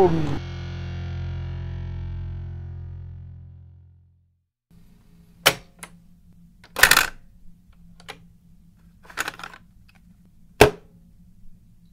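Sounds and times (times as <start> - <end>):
low steady hum: 4.7 - 11.9.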